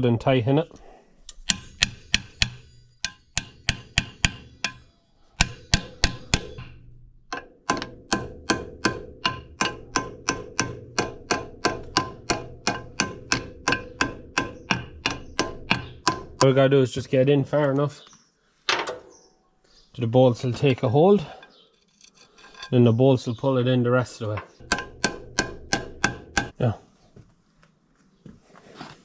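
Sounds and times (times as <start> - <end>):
hammer knocking on metal: 1.4 - 4.8, 5.4 - 16.6, 24.4 - 26.6.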